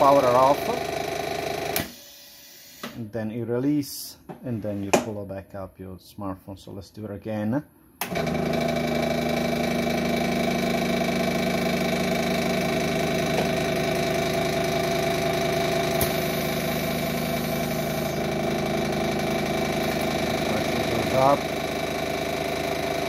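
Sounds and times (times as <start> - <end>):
pump motor hum: 0.0 - 2.9, 8.0 - 23.0.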